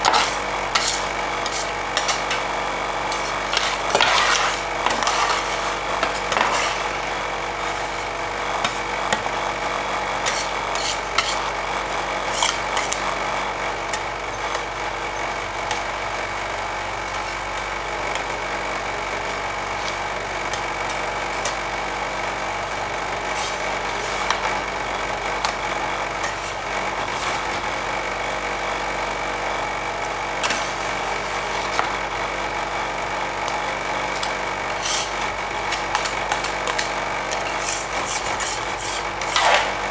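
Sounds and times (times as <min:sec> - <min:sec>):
spatulas scraping metal plate: 0:00.0 - 0:02.5, 0:03.1 - 0:07.0, 0:10.2 - 0:11.6, 0:12.2 - 0:13.0, 0:34.1 - 0:39.9
refrigeration unit hum: 0:00.0 - 0:39.9.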